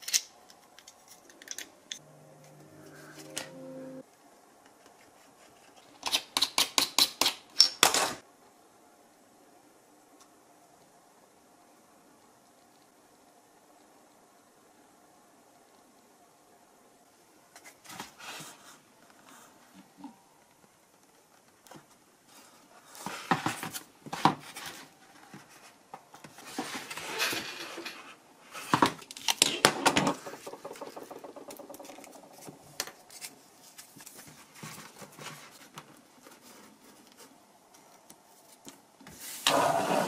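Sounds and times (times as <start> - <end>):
hands handling foam parts: 20.6 - 39.5.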